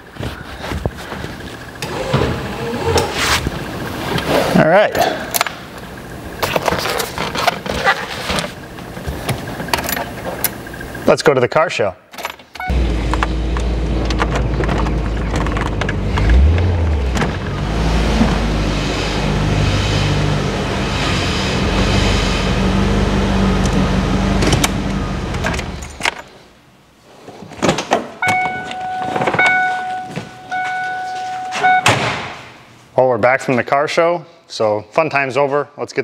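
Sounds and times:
car engine running: 12.7 - 26.0
road and wind noise: 12.7 - 26.1
high warning tone: 28.2 - 32.0.

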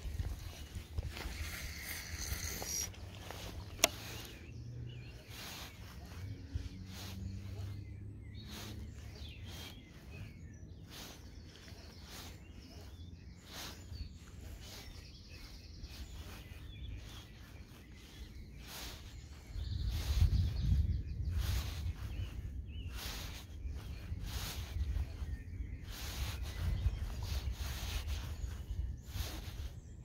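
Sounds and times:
bird chirps: 0.0 - 30.0
short sharp reel sounds: 1.4 - 4.2.

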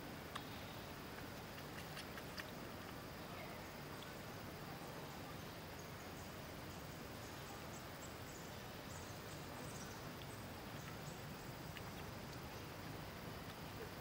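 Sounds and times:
steady hiss: 0.0 - 14.0
soft ticks: 10.1 - 11.0.

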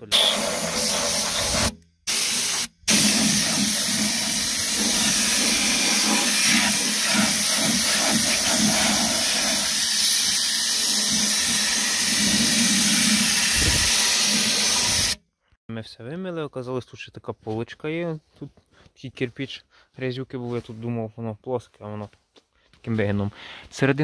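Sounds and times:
compressed-air spray gun hissing: 0.0 - 15.2.

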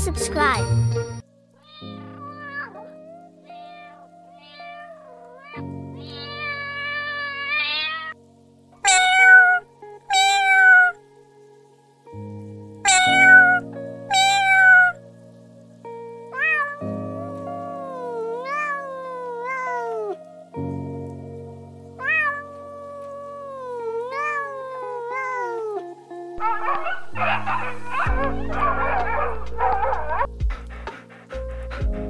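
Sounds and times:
background music: 0.0 - 32.0
cat meowing: 1.6 - 8.2, 8.8 - 11.0, 12.8 - 15.0, 16.4 - 20.3, 22.0 - 30.3
dog vocalising: 26.4 - 32.0.

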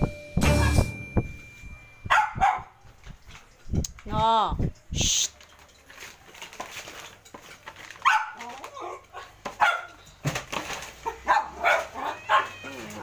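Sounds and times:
small dog yapping: 8.0 - 9.9, 11.0 - 13.0.

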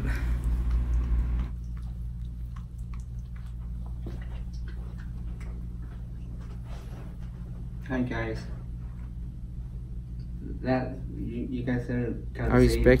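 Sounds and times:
steady low hum: 0.0 - 13.0
dog licking wet smacking: 0.1 - 6.6.

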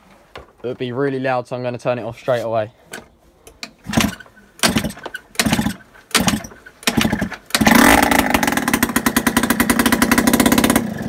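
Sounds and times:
scooter engine kick starting: 3.8 - 11.0
two-stroke engine running loud: 4.7 - 11.0.

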